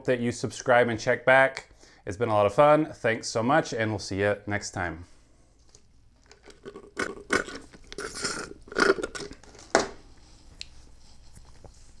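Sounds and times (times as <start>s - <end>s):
slurping through a straw: 6.6s - 9.4s.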